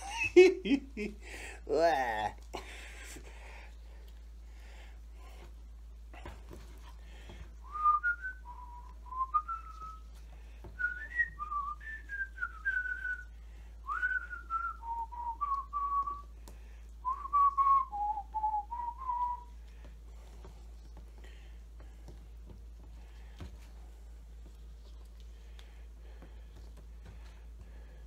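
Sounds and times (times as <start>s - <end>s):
soft handling noises: 2.4s - 17.8s, 18.7s - 28.0s
man whistling a tune: 7.6s - 10.1s, 10.8s - 16.3s, 17.0s - 19.5s.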